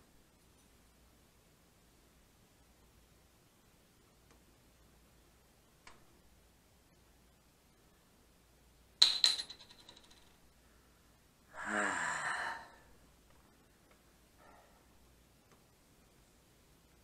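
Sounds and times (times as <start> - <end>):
small hard object bouncing: 9.0 - 10.3
groan-like vocal sound: 11.5 - 12.9.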